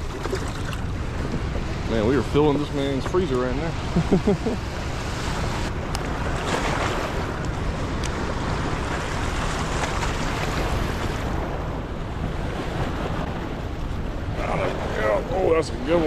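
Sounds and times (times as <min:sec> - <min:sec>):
wind buffeting microphone: 0:00.0 - 0:16.0
water rushing over spillway: 0:14.3 - 0:16.0.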